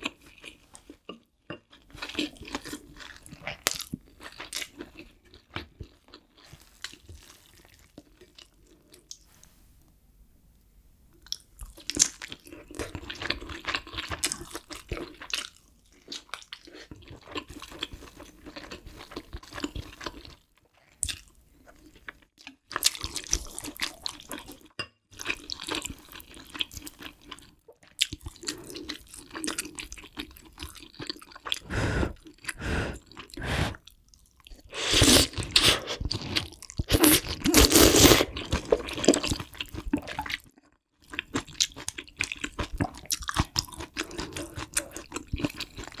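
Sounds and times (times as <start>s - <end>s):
close-miked wet chewing: 11.2s - 46.0s.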